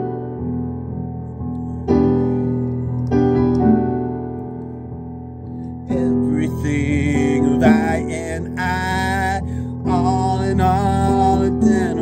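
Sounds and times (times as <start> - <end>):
keyboard chords ringing: 0.0 - 12.0.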